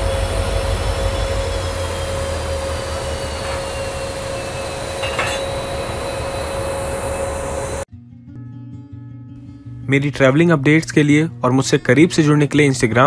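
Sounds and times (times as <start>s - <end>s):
diesel locomotive engine rumble: 0.0s - 7.9s
high whines falling in pitch: 0.0s - 7.9s
metal clank: 3.3s - 6.2s.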